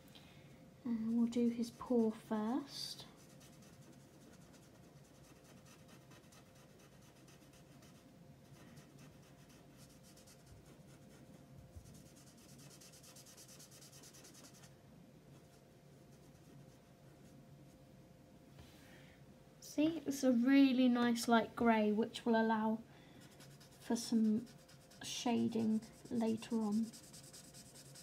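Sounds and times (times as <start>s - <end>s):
marker scratching on paper: 11.9s - 14.7s, 23.3s - 28.0s.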